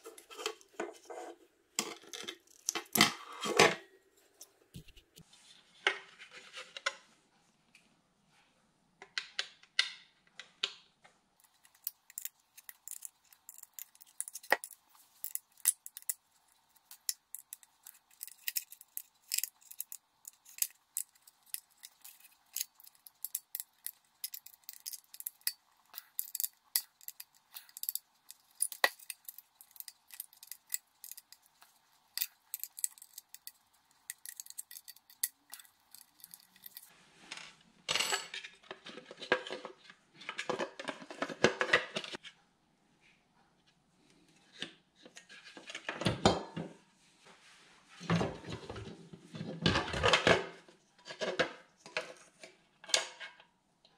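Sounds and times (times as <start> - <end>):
metal key turning screws: 11.4 - 36.9.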